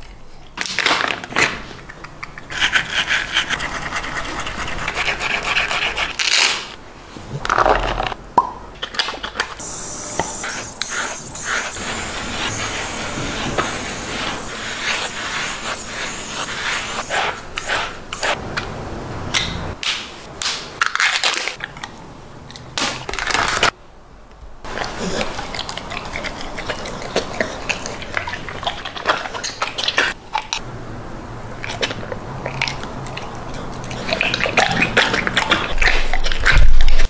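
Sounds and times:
dog licking and slurping food: 24.7 - 30.6, 31.6 - 37.0.

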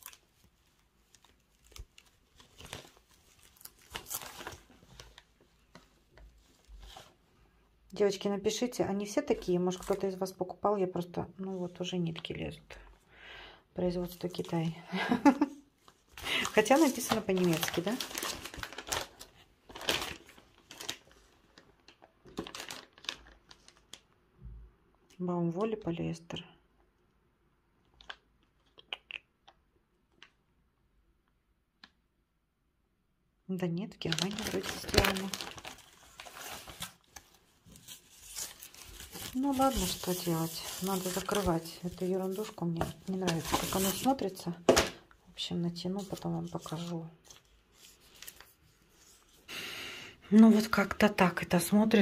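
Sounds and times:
plastic wrapping crinkling: 0.0 - 7.3, 15.2 - 24.1, 34.0 - 45.1, 45.7 - 49.4.

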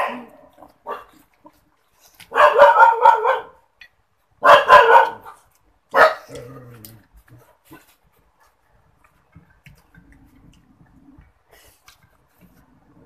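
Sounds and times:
dog barking loudly: 0.0 - 1.2, 2.3 - 3.6, 4.4 - 6.4.

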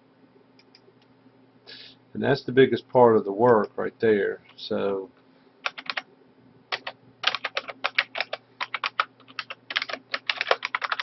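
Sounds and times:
faint low hum: 0.0 - 11.0
typing on computer keyboard: 5.6 - 6.0, 6.7 - 11.0.

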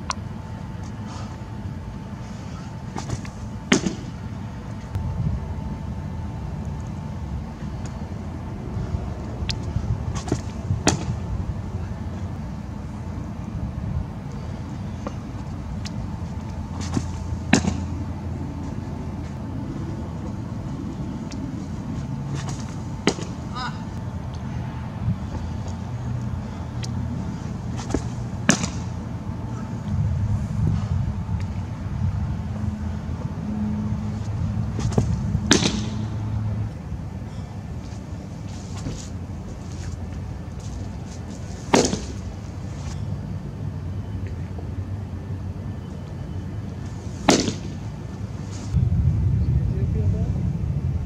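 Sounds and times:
steady low hum: 0.0 - 51.0
baseball smacking into leather mitt: 2.9 - 4.2, 10.2 - 11.2, 16.8 - 17.9, 22.3 - 23.4, 27.8 - 28.9, 34.8 - 36.1, 41.2 - 42.3, 47.2 - 47.8
low rumble: 48.6 - 51.0.

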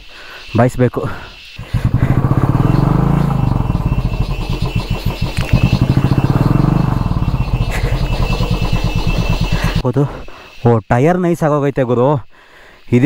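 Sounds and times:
motorcycle engine chugging: 1.6 - 9.8.

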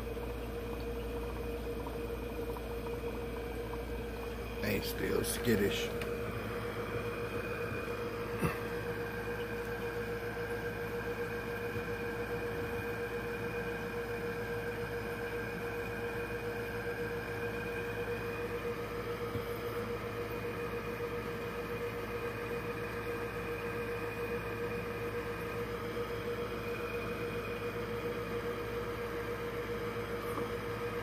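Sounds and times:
aquarium filter humming: 0.0 - 31.0.

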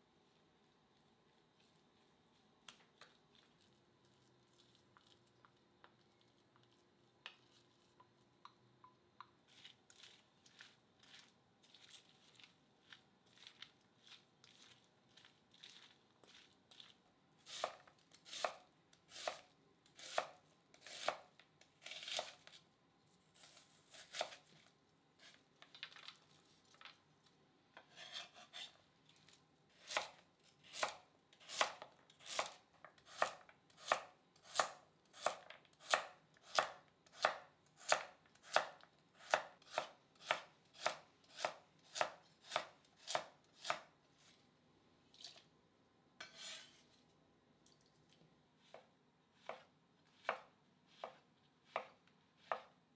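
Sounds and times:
knife cutting on cutting board: 23.4 - 24.5, 27.8 - 28.8, 46.2 - 46.9, 49.4 - 52.7.

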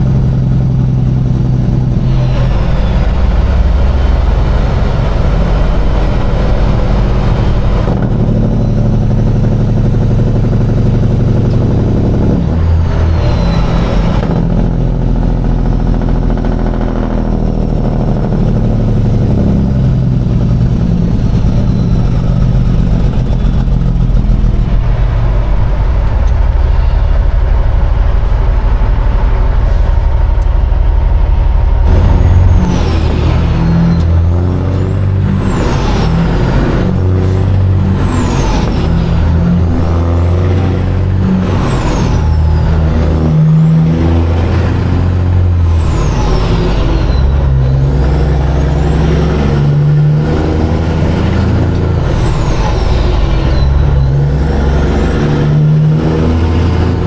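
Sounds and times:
truck diesel engine accelerating: 0.0 - 57.0.

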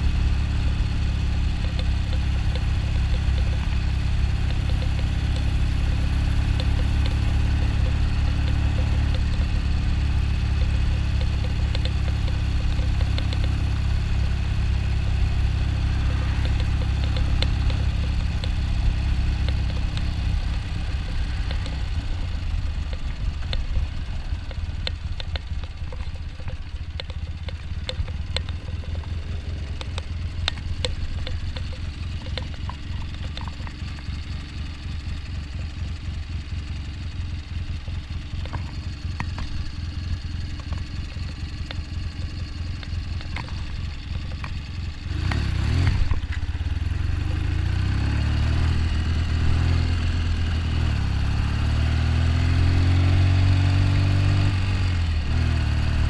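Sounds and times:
motorcycle engine running: 0.0 - 56.0
light ticking: 0.2 - 35.3.

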